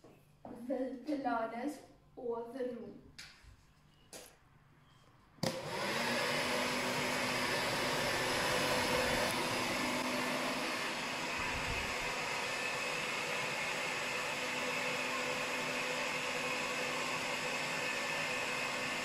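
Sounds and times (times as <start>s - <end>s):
hair dryer blowing air: 5.4s - 19.0s.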